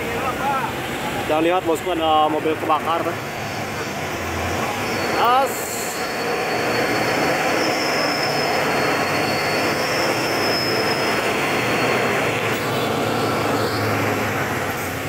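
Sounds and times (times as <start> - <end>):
thin high whine: 3.0 - 15.0.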